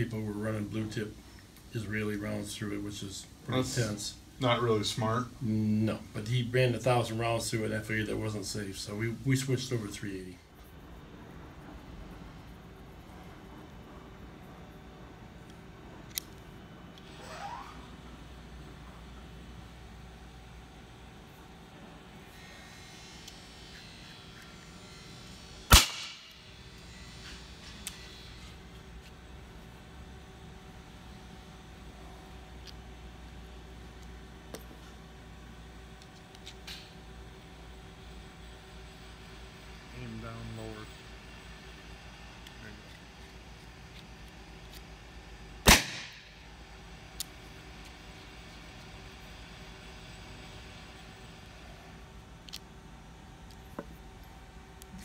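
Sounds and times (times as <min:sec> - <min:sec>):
gunshot crack with echo: 0:25.7 - 0:26.3, 0:45.6 - 0:46.3.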